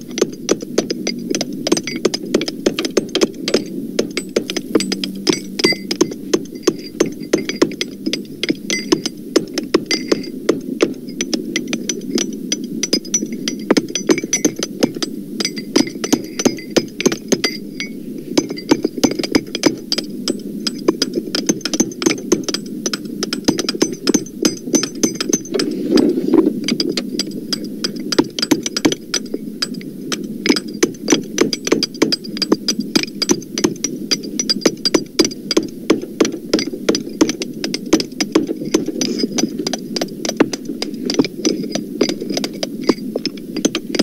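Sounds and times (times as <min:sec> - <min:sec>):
steady low rumble: 0:00.0 - 0:44.0
hammers striking metal: 0:00.2 - 0:25.8.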